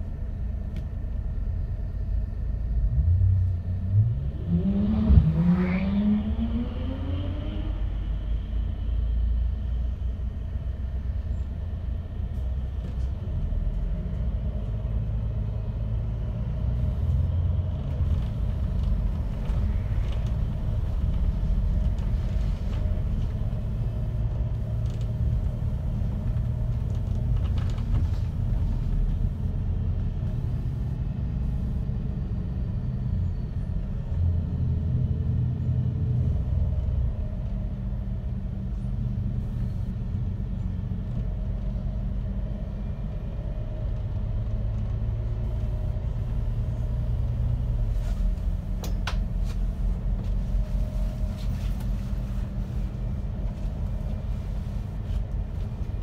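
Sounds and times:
bus engine and road rumble: 0.0s - 56.0s.

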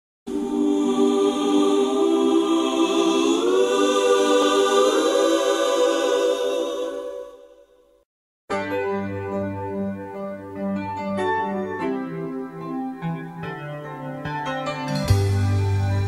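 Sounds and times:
choir-like held chord: 0.3s - 7.8s.

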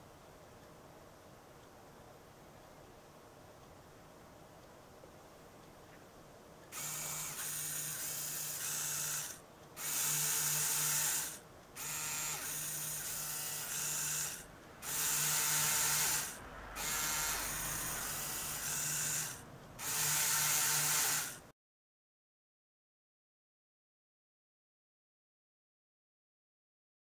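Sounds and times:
electric motors whirring through gears: 6.8s - 21.4s.

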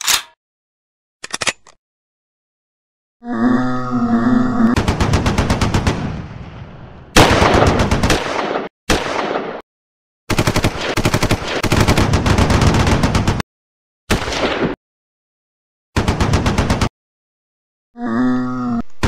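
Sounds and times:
machine-gun fire: 7.2s - 9.6s, 10.3s - 13.4s.

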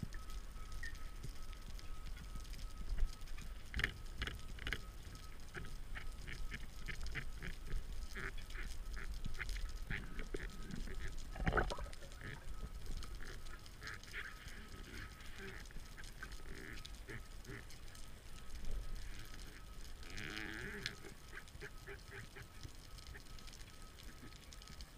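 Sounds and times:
rubber squeaks underwater: 10.2s - 12.6s.

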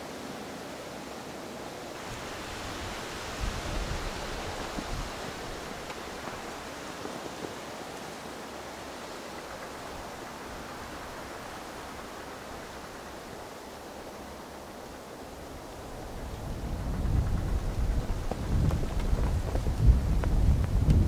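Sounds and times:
distant train rushing: 2.0s - 20.3s
wind thumps on microphone: 16.2s - 21.0s.

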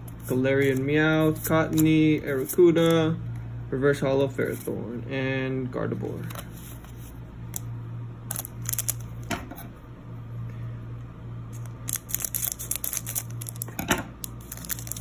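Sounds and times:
steady low hum: 0.0s - 15.0s
foil wrapper crinkling and tearing: 8.3s - 9.1s, 11.6s - 15.0s.

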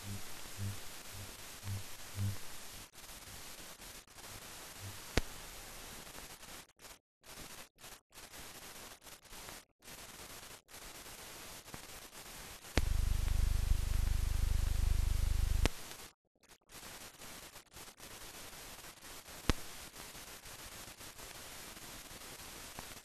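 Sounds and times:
faint low pulses: 0.0s - 2.8s, 4.8s - 5.1s, 12.8s - 15.7s
film hiss: 0.0s - 16.1s, 16.7s - 23.0s.

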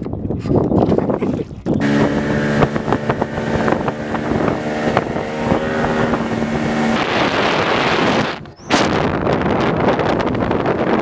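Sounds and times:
water noise: 0.0s - 11.0s
wind rushing across microphone: 0.0s - 11.0s
outboard motor drone: 1.7s - 9.0s.

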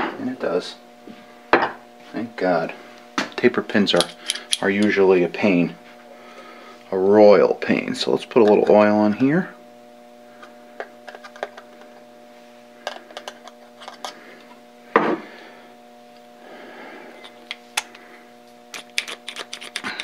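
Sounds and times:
low electrical hum: 0.0s - 20.0s
small steel parts clicking: 4.0s - 4.9s.

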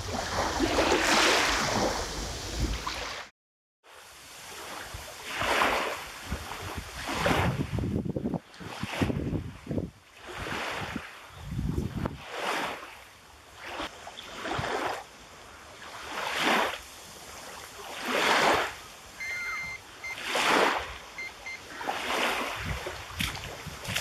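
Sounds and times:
small waves lapping against bank: 0.0s - 3.3s, 3.9s - 24.0s
short high beeps: 19.2s - 20.3s, 21.2s - 21.7s.

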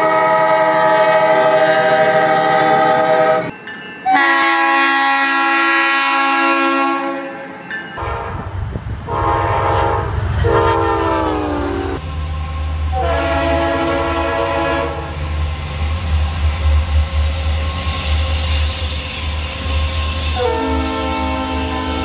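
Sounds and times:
locomotive horn blasts: 0.0s - 3.5s, 4.1s - 12.0s, 12.9s - 15.2s, 20.2s - 22.0s
train engine rumble: 7.5s - 22.0s.

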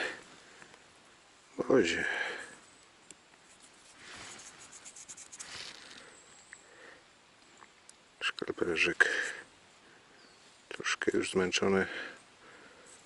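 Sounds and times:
scratchy rustling of dirt: 3.2s - 6.2s.

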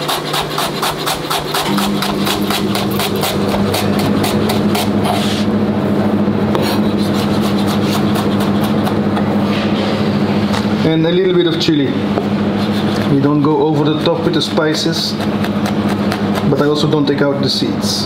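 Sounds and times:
knife chopping on cutting board: 0.0s - 5.4s, 6.5s - 9.3s, 14.4s - 16.6s
low hum: 1.5s - 14.0s.

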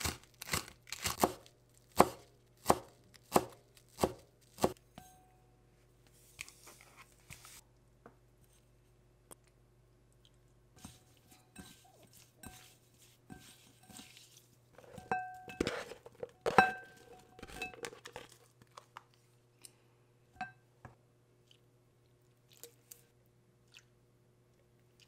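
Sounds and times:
squid kneaded by hand: 10.8s - 15.0s.

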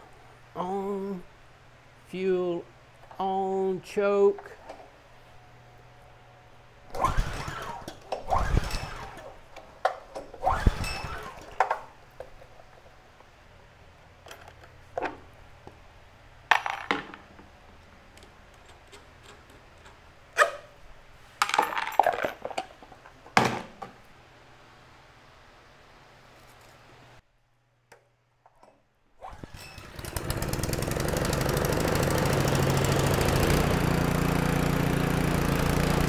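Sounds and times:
engine pull-start: 6.9s - 9.4s, 10.3s - 11.7s, 29.2s - 36.0s.

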